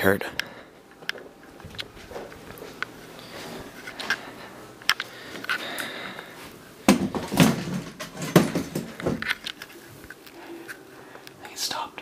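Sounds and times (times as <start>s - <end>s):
chair thumping and clattering: 6.9s - 9.3s.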